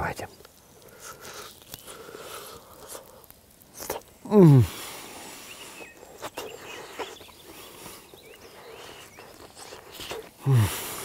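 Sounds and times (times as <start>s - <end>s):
man chewing: 0.8s - 4.7s, 5.8s - 11.0s
man humming mmm: 3.8s - 4.9s, 9.6s - 11.0s.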